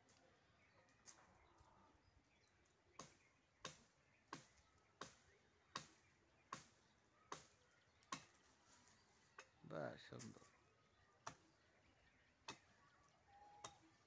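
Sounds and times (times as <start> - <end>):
blade chopping tree branch: 2.9 - 8.4, 11.2 - 11.6, 12.4 - 12.7.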